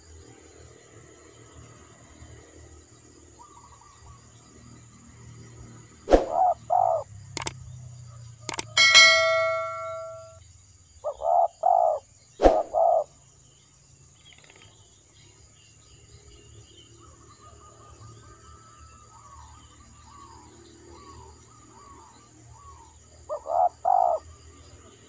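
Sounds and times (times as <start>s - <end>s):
sharp clicks: 8.5s - 10.3s
bell-like ding: 8.5s - 10.4s.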